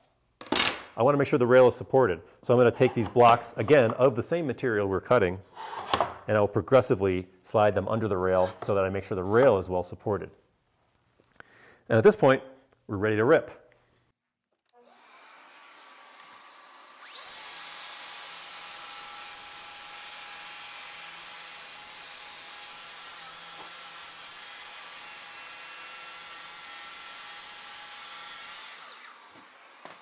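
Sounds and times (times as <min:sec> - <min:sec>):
track saw cutting wood: 0:14.8 - 0:30.0.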